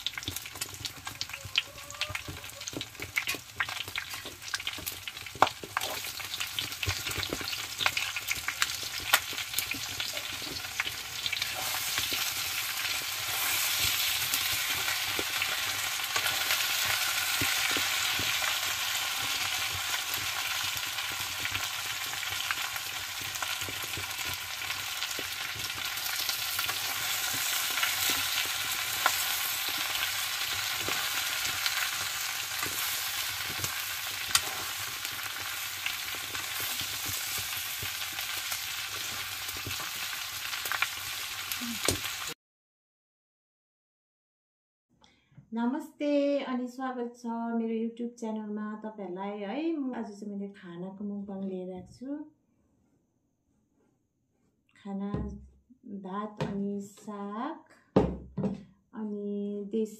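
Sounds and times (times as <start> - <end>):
chicken sizzling in a pan: 0.0 - 42.4
metal spatula scraping a pan: 10.0 - 12.3.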